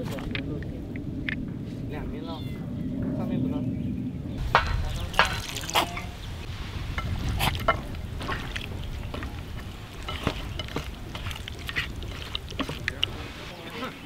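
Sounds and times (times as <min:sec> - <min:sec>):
wet squelches of hand squeezing chicken: 0:10.1 - 0:13.3.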